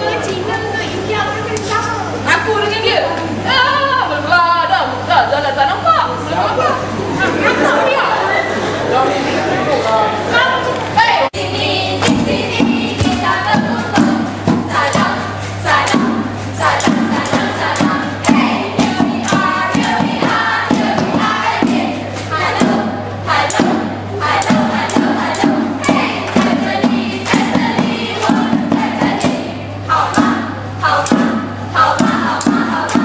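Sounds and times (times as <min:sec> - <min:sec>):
young voices singing together: 0:10.2 - 0:33.0
frame drum beat: 0:12.0 - 0:33.0.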